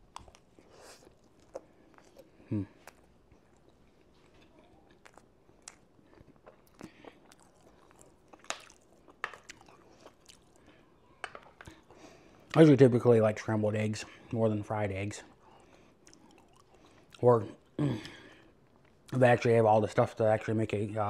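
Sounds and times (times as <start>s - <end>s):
person chewing wet food: 0.0s - 12.6s, 15.2s - 19.2s.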